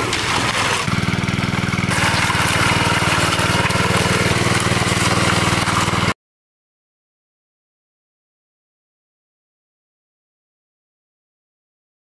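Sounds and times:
small petrol engine running: 0.0 - 6.2.

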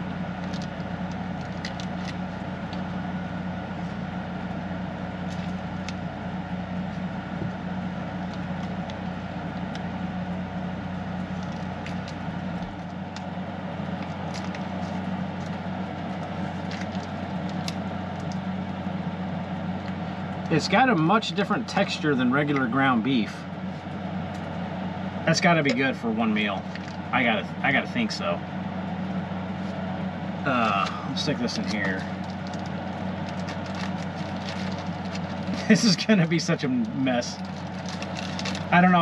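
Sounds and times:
air conditioner humming: 0.0 - 39.0
handling raw ground beef: 30.6 - 36.1.

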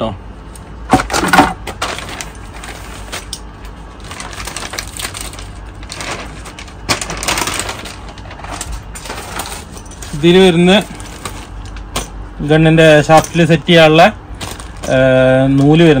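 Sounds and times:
packaging rustling: 1.6 - 12.0, 14.4 - 15.2.

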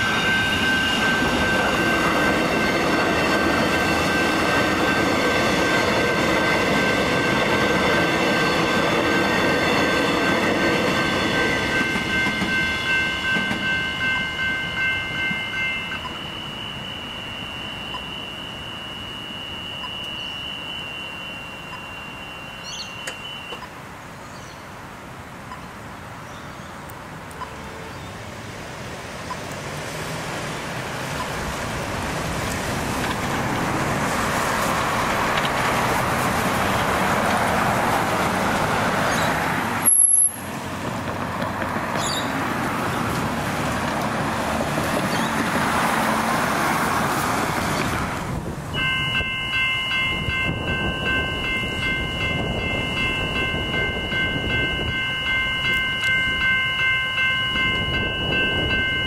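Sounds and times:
steady high tone: 0.0 - 23.7, 48.7 - 59.0
cars passing: 0.0 - 59.0.

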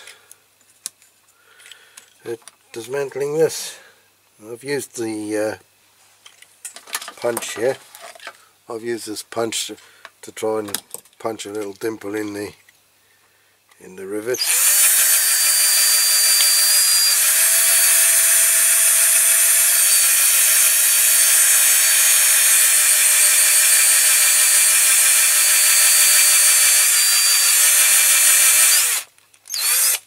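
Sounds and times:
electric drill whining: 14.3 - 30.0.

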